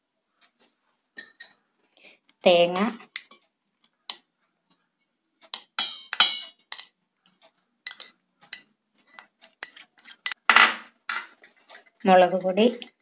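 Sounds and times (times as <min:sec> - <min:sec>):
metal spoon clinking on glass bowl: 0:01.2 - 0:01.6, 0:05.5 - 0:07.0, 0:07.8 - 0:13.0.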